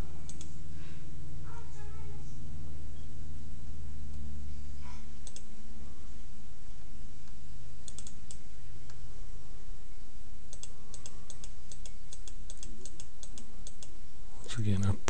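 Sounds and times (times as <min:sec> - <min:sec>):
low electrical hum: 0:00.0 - 0:15.0
computer mouse clicks: 0:00.2 - 0:00.6, 0:05.2 - 0:05.5, 0:07.2 - 0:09.0, 0:10.5 - 0:13.9.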